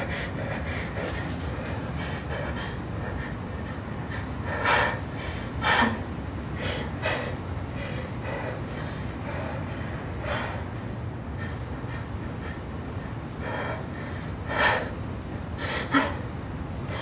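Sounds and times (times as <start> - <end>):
steady low rumble: 0.0 - 17.0
woman breathing heavily: 0.0 - 17.0.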